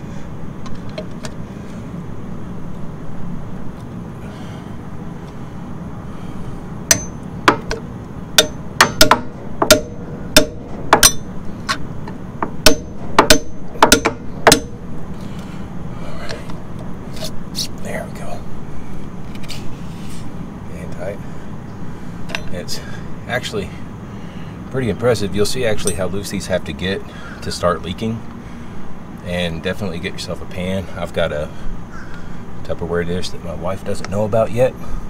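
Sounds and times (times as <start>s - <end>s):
hammer striking metal wrench: 6.9s - 7.8s, 8.4s - 11.8s, 12.6s - 14.8s.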